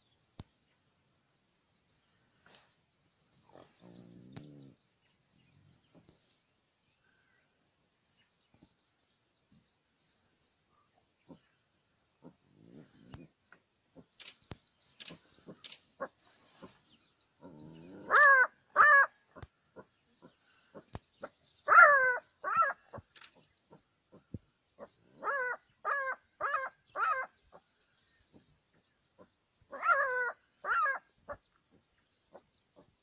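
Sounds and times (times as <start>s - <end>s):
faint clicks: 13.1s - 15.9s, 23.1s - 23.5s
jackal yelping alarm calls: 18.0s - 19.1s, 21.7s - 23.3s, 24.8s - 27.3s, 29.7s - 31.4s.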